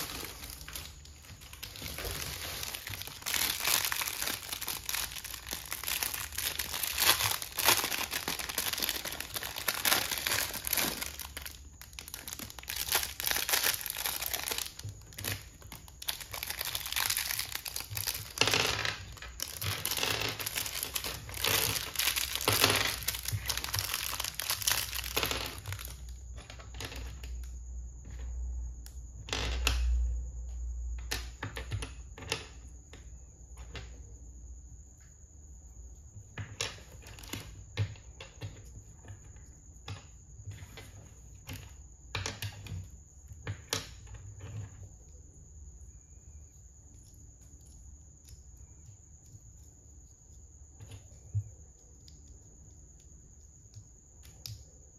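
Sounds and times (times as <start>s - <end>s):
plastic bag crinkling: 0.0s - 26.1s.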